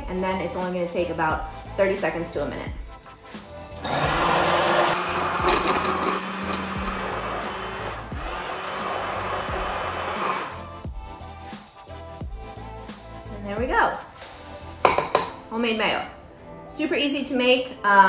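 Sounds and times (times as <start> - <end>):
immersion blender whirring in glass jar: 3.8 - 10.7.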